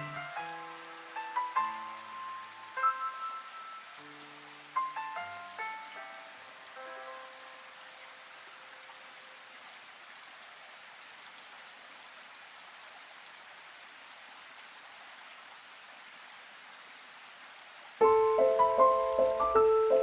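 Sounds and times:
gentle solo piano music: 0.0 - 7.6, 18.0 - 20.0
faint steady hiss: 0.0 - 20.0.

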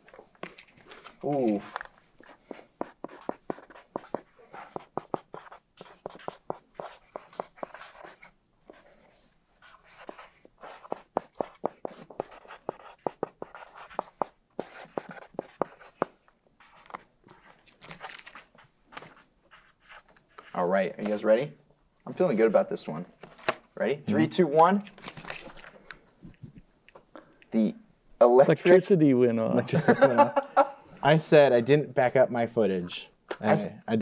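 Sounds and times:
markers scratching on boards: 2.2 - 17.6.

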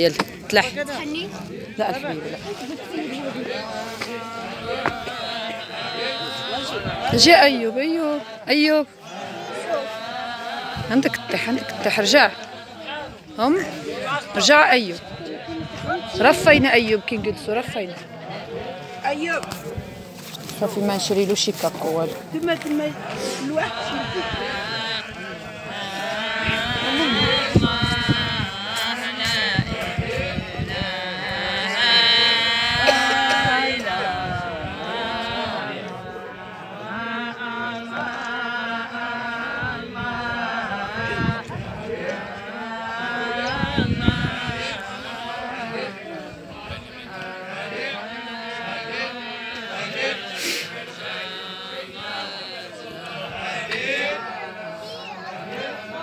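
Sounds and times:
man chanting: 3.5 - 18.0.

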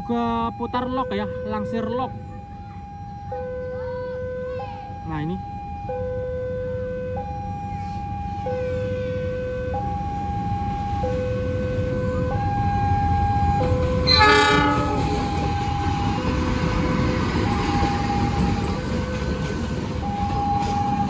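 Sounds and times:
train rumbling: 0.0 - 21.0
two-tone crossing alarm: 0.0 - 21.0
train horn: 14.0 - 15.4.

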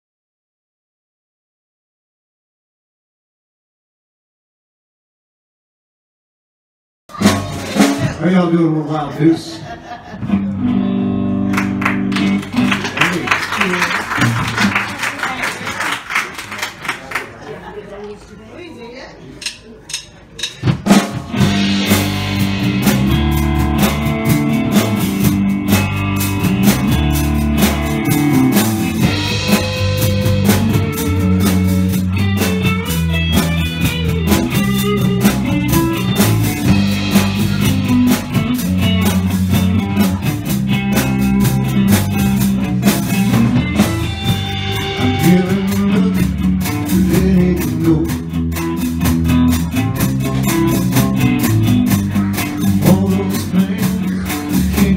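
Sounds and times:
drum kit: 7.1 - 8.8, 10.2 - 14.9, 19.4 - 54.9
bass guitar: 7.1 - 14.9, 20.4 - 54.9
electric guitar: 9.6 - 14.9, 20.7 - 54.9.

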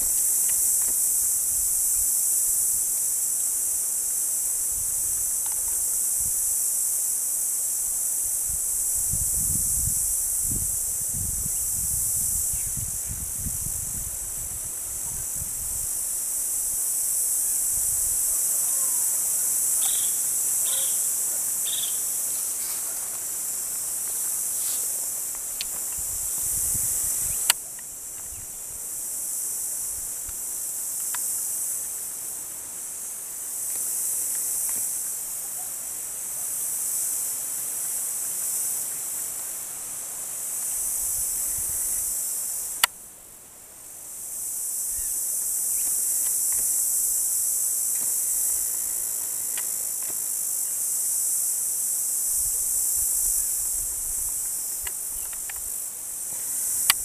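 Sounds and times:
insects buzzing: 0.0 - 57.0.

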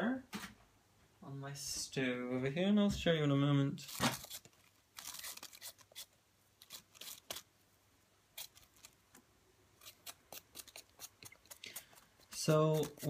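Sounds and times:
potato peeling scrapes: 3.8 - 7.5, 8.3 - 9.0, 9.8 - 13.0.

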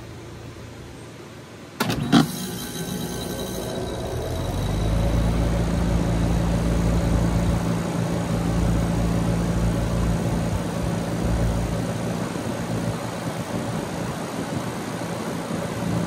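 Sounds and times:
condenser fan turning: 1.8 - 16.0
heat pump humming: 1.8 - 16.0
low rumble: 3.4 - 13.8.

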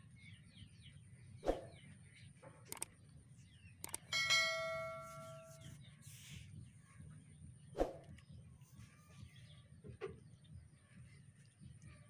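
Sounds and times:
sharp clicks: 2.7 - 3.0, 3.8 - 4.1
notification bell chime: 4.1 - 5.6.

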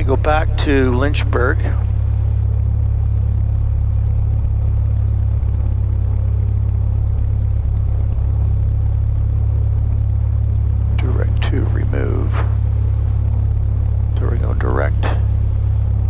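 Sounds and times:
propeller plane engine droning: 0.0 - 16.0.

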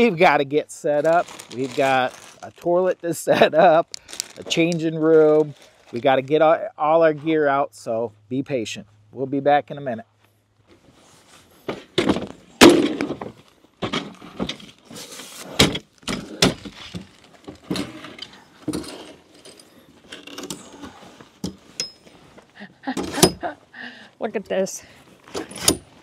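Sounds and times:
camping gear knocks and clatters: 11.6 - 23.5.

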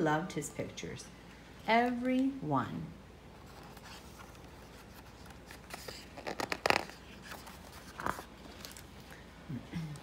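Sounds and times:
book page turning: 3.4 - 9.2.

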